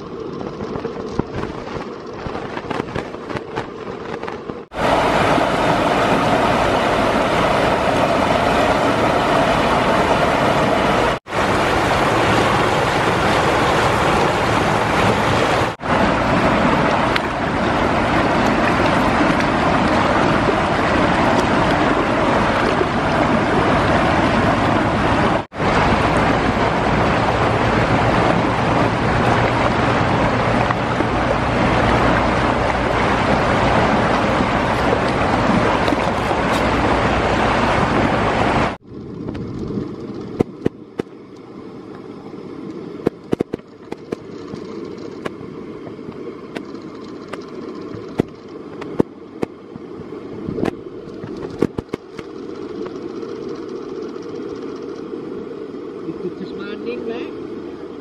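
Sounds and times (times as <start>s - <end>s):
fast-flowing river water: 4.6s - 38.8s
sharp clicks: 46.6s - 49.1s.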